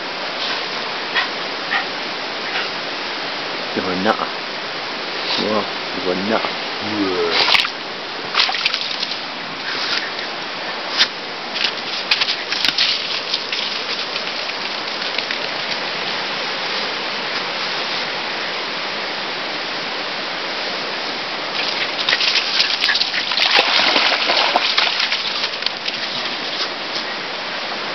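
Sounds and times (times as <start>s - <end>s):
stream water flowing: 0.0s - 27.9s
leaves crackling underfoot: 8.4s - 18.4s.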